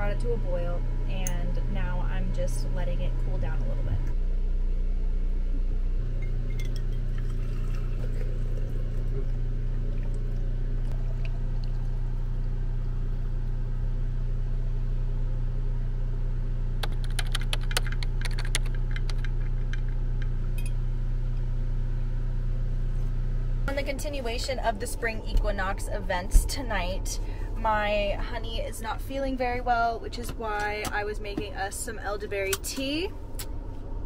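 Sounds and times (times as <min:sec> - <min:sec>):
steady low hum: 0:00.0 - 0:34.0
tea pouring into glass jar: 0:06.5 - 0:11.9.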